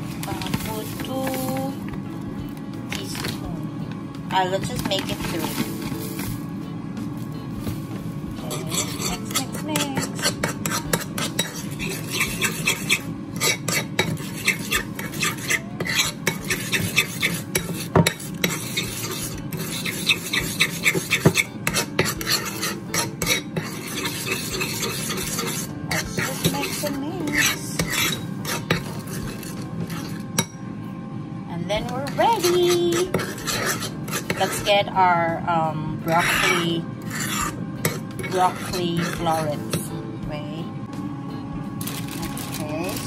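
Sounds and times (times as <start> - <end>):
spoon stirring thick dressing: 8.4 - 30.4, 32.1 - 34.8, 36.1 - 39.8.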